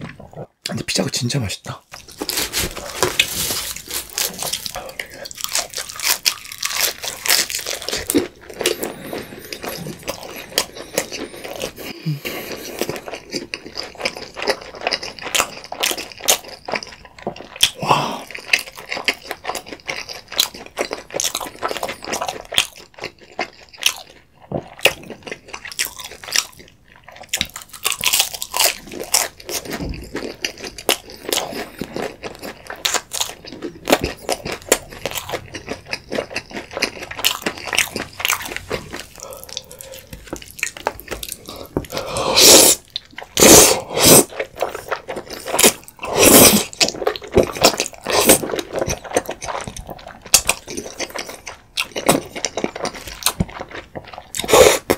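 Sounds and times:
chewing and crunching pizza: 1.9s - 54.9s
slurping pasta: 36.6s - 50.2s.

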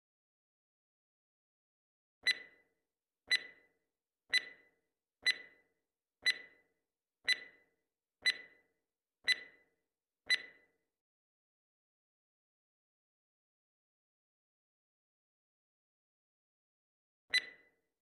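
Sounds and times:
countdown timer ticking: 3.3s - 3.6s, 4.3s - 5.6s, 6.2s - 6.6s, 7.3s - 7.6s, 8.2s - 8.6s, 9.3s - 9.6s.

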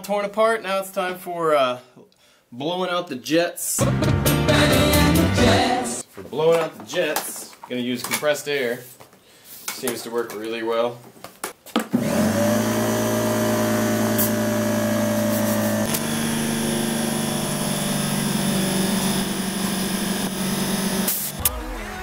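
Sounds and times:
air compressor motor running: 12.0s - 21.4s.

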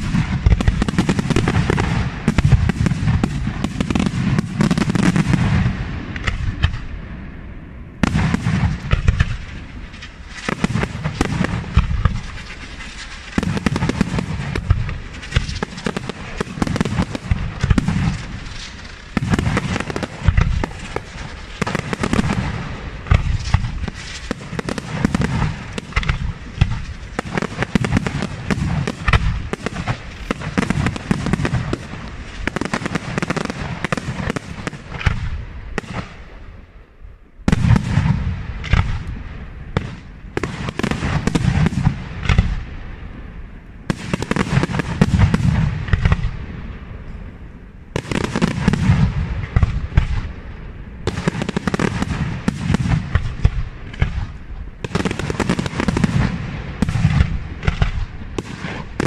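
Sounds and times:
firework shells bursting: 8.0s - 36.2s.

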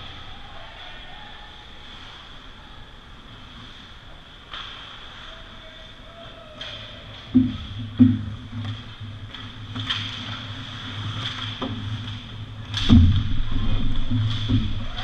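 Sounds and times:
steady rink hum: 0.0s - 15.0s
hockey sticks and puck knocking: 6.6s - 15.0s
skates on ice: 6.6s - 15.0s
heavy thumps: 7.3s - 10.5s, 12.6s - 15.0s.

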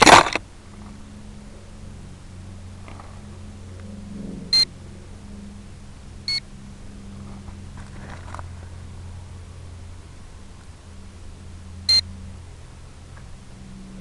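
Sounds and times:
low hum: 0.0s - 14.0s
short electronic beeps: 11.9s - 12.1s.

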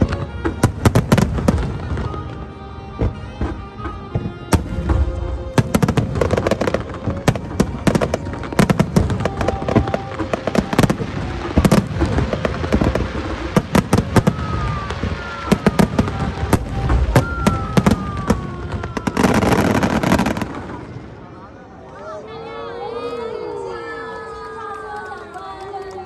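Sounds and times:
fireworks bursting with bangs and crackles: 0.0s - 21.5s.

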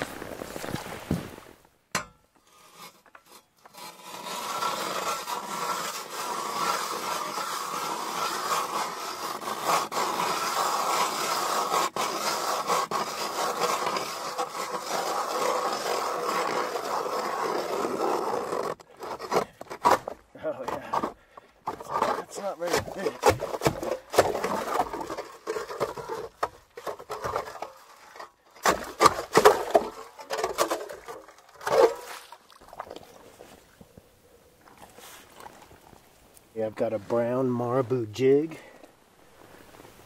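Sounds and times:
ice auger grinding through ice: 2.5s - 32.4s.

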